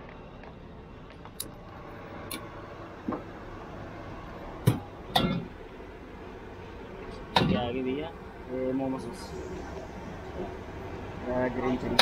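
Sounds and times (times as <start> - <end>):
steady background hum: 0.0 - 12.0.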